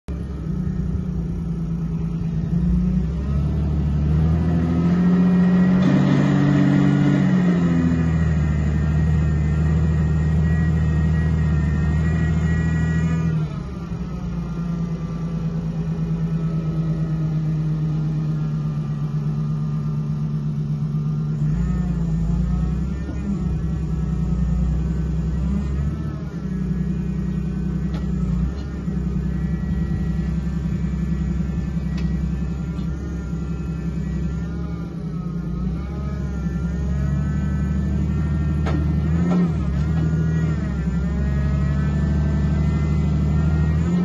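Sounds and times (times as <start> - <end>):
forklift engine revving: 0.1 - 44.0.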